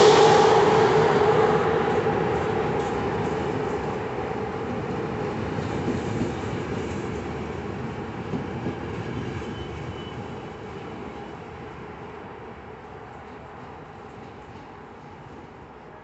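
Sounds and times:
train coaches rumbling on rails: 0.0s - 16.0s.

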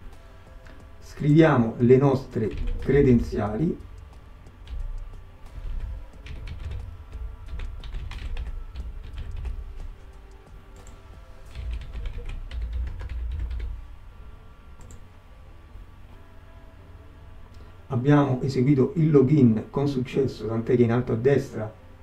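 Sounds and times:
typing on computer keyboard: 2.3s - 13.8s.

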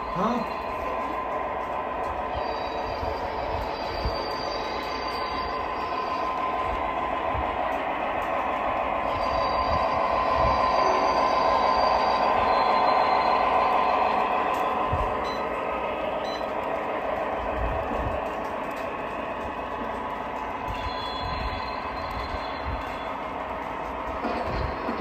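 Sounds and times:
model train wheels rumbling: 0.0s - 25.0s
faint high squeals: 2.3s - 6.4s, 9.1s - 14.1s.

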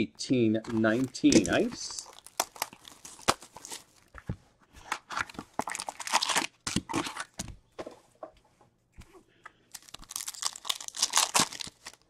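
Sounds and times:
wrapper tearing and crinkling: 0.9s - 4.1s, 5.1s - 7.3s, 9.7s - 12.0s.

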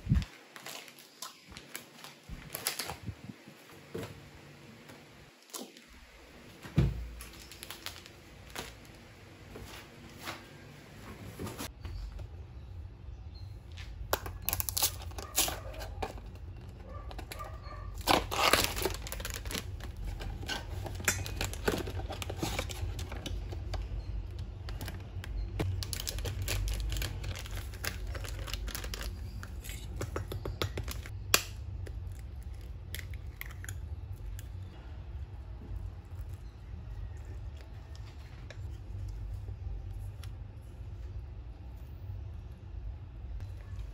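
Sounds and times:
cardboard and plastic crinkling: 0.0s - 3.2s, 6.7s - 9.6s, 14.4s - 23.9s, 24.7s - 30.0s.

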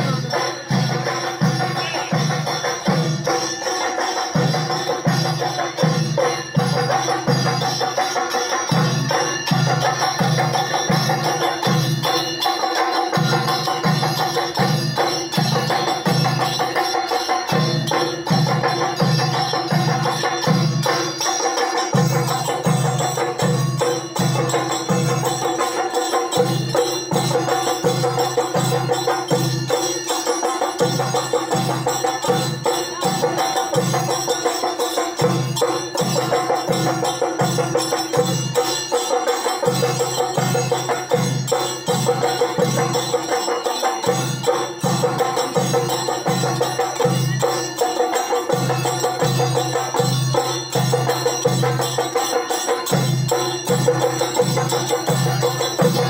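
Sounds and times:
cymbals ringing: 0.0s - 56.0s.

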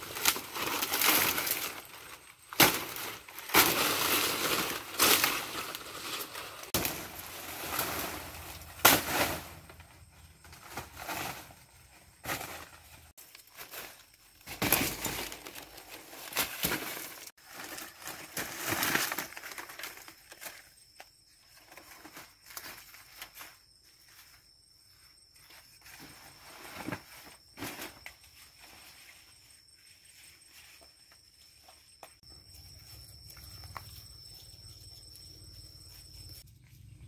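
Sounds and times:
leaves rustling and crackling: 0.0s - 20.7s.

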